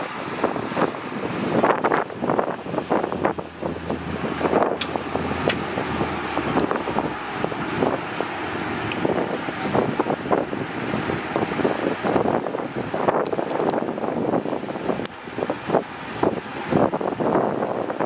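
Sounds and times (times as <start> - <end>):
wind buffeting microphone: 0.0 - 18.0
heavy machinery engine running: 1.4 - 12.2.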